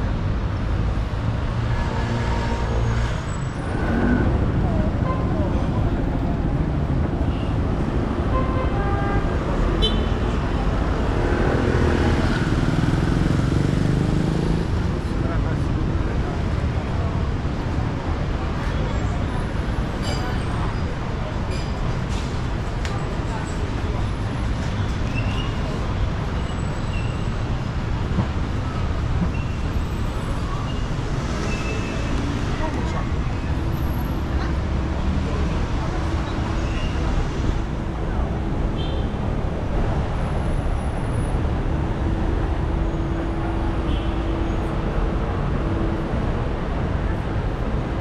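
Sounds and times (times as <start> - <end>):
rumble of passing vehicles: 0.0 - 48.0.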